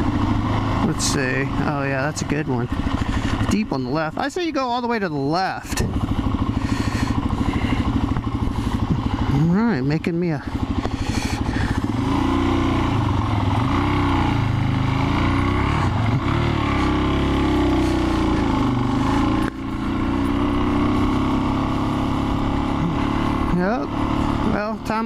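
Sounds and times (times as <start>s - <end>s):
motorcycle engine revving hard: 0.0s - 4.2s, 4.8s - 25.0s.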